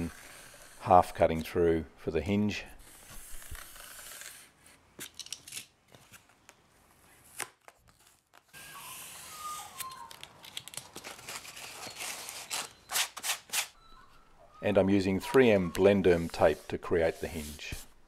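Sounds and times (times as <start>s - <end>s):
utility knife cutting foam: 15.2s - 18.0s.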